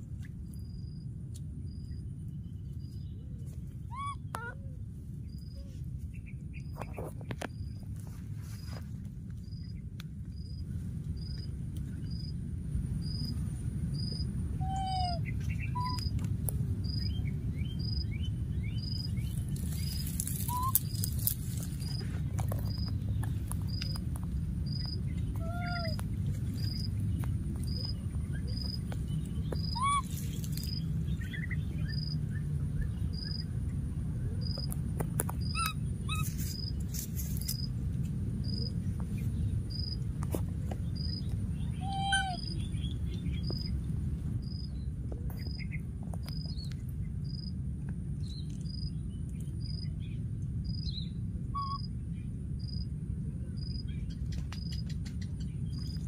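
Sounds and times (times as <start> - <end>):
steady low rumble: 0.0 - 56.0
short squeaky calls: 3.9 - 4.6, 20.5 - 21.0, 29.6 - 30.3, 35.4 - 36.7
rustling crackles: 6.8 - 9.6, 19.2 - 30.8, 36.2 - 38.2.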